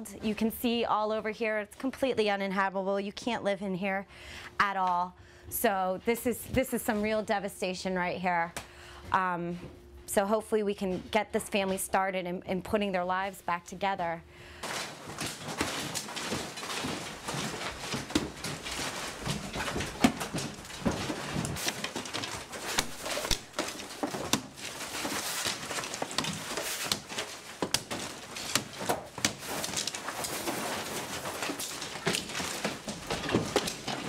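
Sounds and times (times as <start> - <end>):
debris clattering: 14.6 - 34.0
wall material tearing: 14.6 - 34.0.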